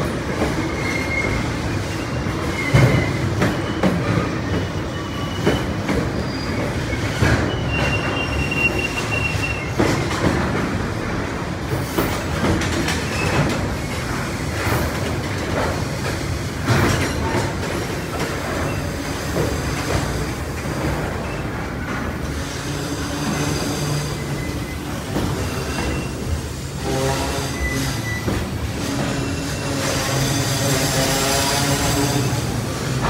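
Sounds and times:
high wheel squeal: 0.5 - 9.9, 22.3 - 33.0
train wheels knocking over rail joints: 2.3 - 33.0.

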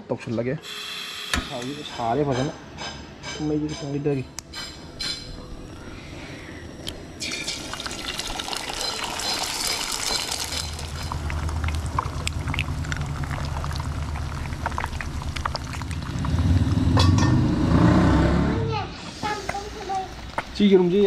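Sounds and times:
eggs cracking: 6.8 - 16.8
eggs sizzling in hot oil: 7.2 - 17.3, 19.1 - 21.0.

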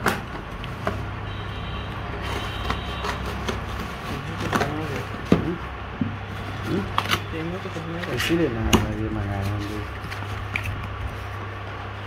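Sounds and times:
scissors snipping cardboard: 0.0 - 1.0, 2.2 - 5.6.

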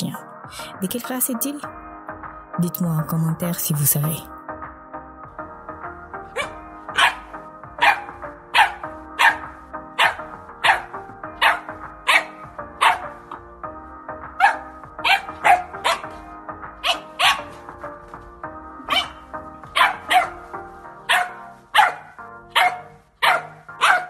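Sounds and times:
puppy barking: 6.3 - 13.4, 14.3 - 16.2, 16.8 - 17.6, 18.8 - 20.4, 21.0 - 24.0.

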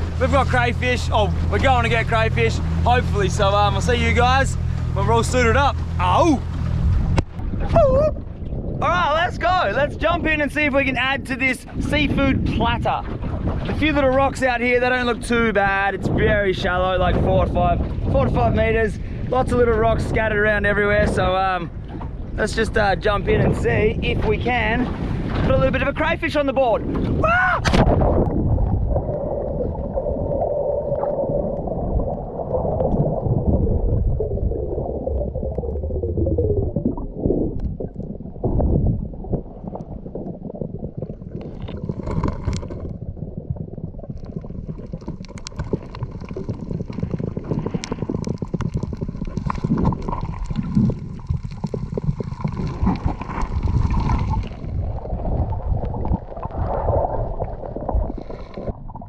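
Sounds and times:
underwater water rumble and bubbles: 0.0 - 59.0
crackle of small clicks: 34.9 - 38.2, 39.3 - 43.2, 44.0 - 56.8.

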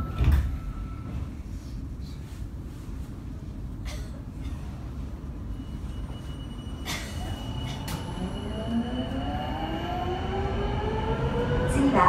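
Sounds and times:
train low rumble: 0.0 - 12.0
train drive whine rising: 7.4 - 12.0.

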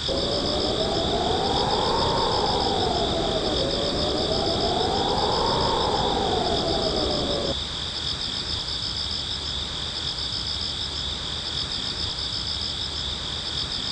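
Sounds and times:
night insect chorus: 0.0 - 13.9.

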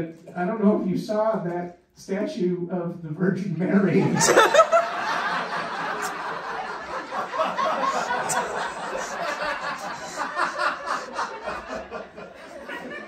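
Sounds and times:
audience laughing: 4.0 - 13.0.

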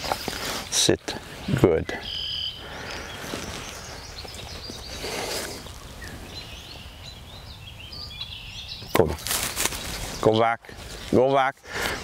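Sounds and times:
faint bird chirps: 1.4 - 11.2
rustling: 9.1 - 11.1.

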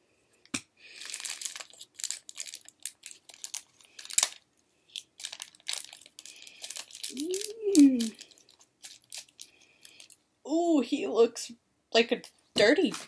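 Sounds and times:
plastic wrapper crinkling and tearing: 0.9 - 10.2.

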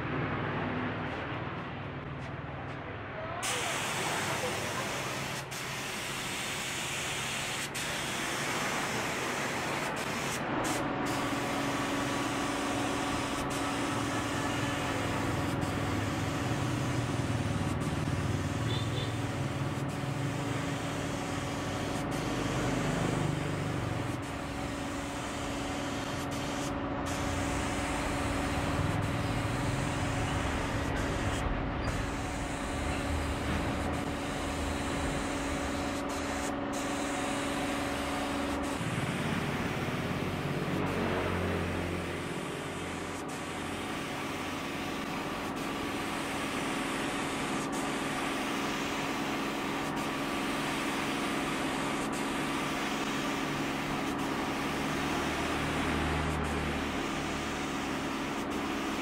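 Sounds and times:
spray gun hissing: 3.4 - 59.0
air compressor motor humming: 10.8 - 59.0.

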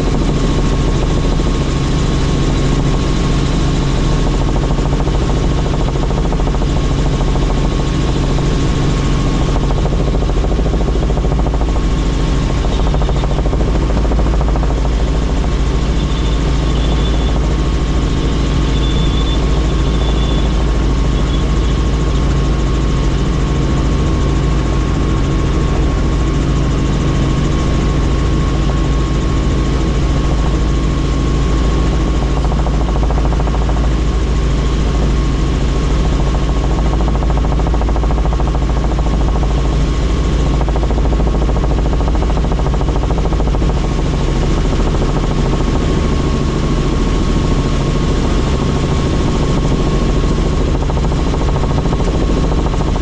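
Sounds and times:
helicopter rotor drone: 0.0 - 53.0.

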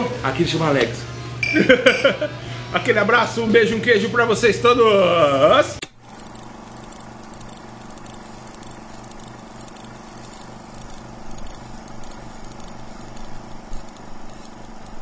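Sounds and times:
music with sustained chords: 0.0 - 5.2.

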